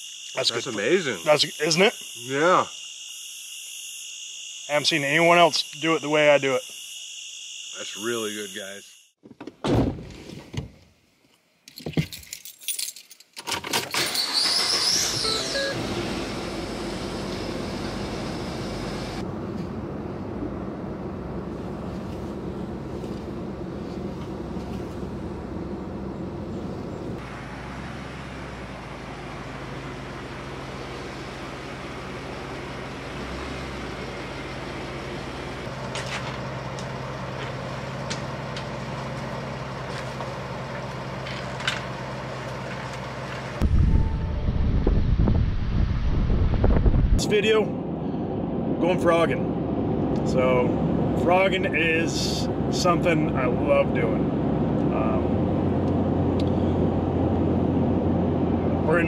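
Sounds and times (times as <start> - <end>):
truck engine idling: 14.4 - 44.1
wind buffeting microphone: 43.6 - 47.2.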